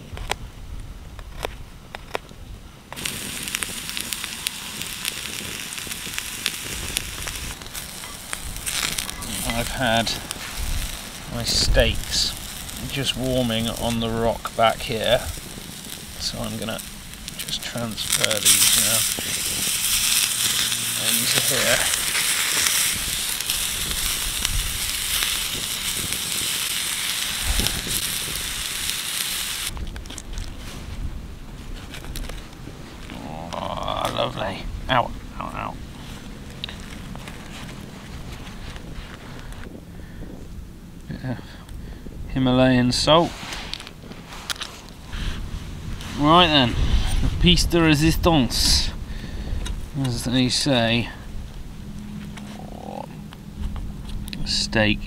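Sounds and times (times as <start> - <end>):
campfire crackling and popping: 0.0 - 55.0
onion sizzling in a frying pan: 3.0 - 30.7.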